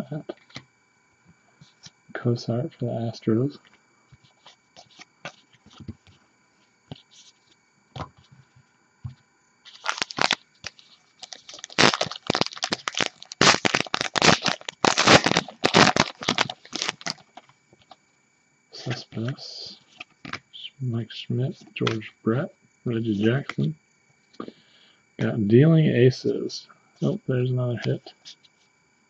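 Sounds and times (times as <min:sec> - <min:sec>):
card pack wrapper tearing: 0:09.7 - 0:17.4.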